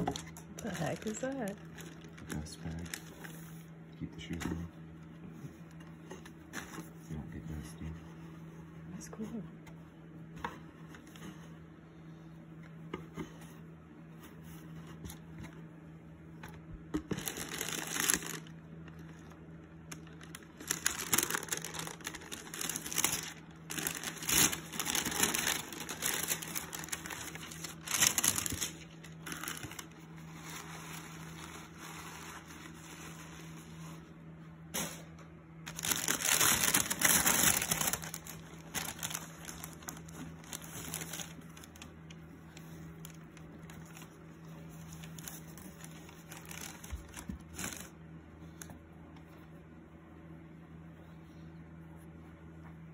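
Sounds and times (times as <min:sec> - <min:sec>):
faint steady hum: 0:00.0 - 0:52.9
tissue paper rustling: 0:00.2 - 0:03.7, 0:17.2 - 0:19.1, 0:20.0 - 0:34.1, 0:35.7 - 0:41.8, 0:42.6 - 0:47.9.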